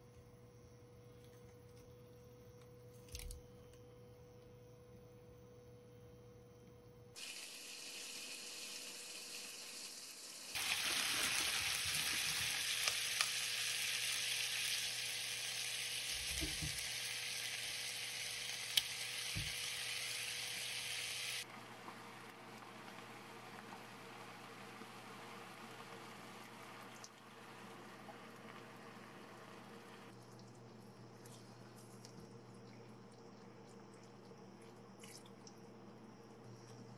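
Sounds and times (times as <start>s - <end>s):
food sizzling in frying pan: 7.2s - 26.8s.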